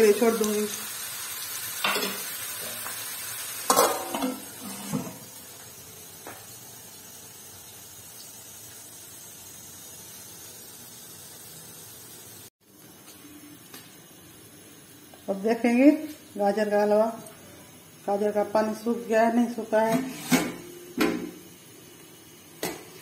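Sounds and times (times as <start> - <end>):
vegetables sizzling in oil: 0.0 - 23.0
metal plate clattering on pot: 3.7 - 5.2.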